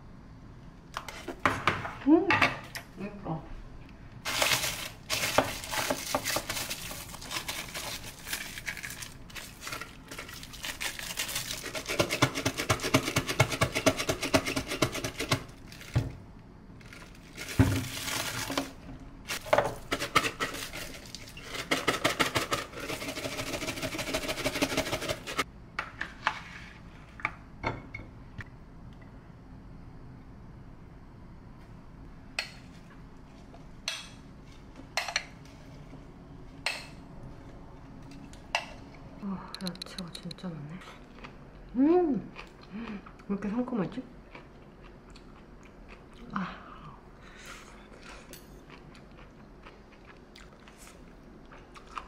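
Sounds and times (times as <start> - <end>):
plastic bag crinkling: 4.3 - 11.9, 16.8 - 19.5.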